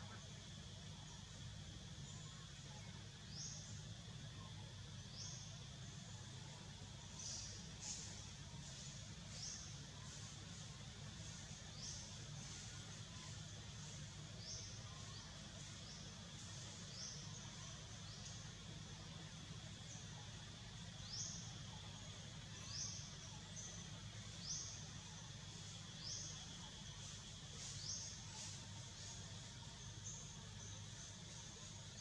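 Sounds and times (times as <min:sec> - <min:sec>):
steady high hum: 0:00.0 - 0:32.0.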